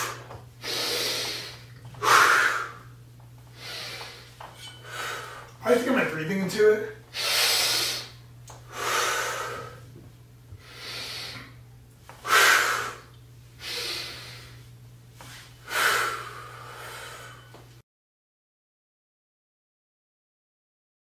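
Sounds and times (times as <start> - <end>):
man breathing heavily: 0.0 - 5.6, 7.1 - 11.6, 12.2 - 14.7, 15.6 - 17.6.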